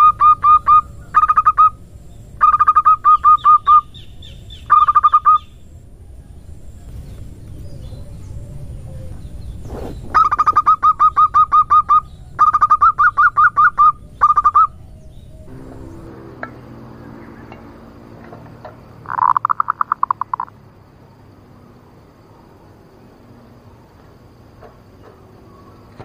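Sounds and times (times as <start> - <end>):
dove rattling call: 0.0 - 1.8, 2.4 - 5.6, 7.6 - 20.6.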